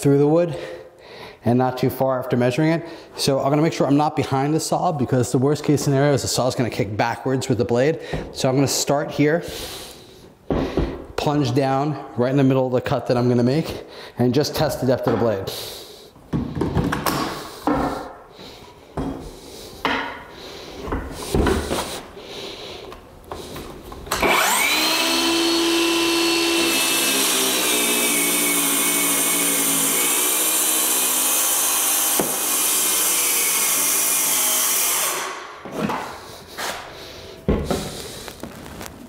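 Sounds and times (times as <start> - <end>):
circular saw cutting plywood: 24.2 - 35.4
saw knocking on plywood: 31.9 - 32.7.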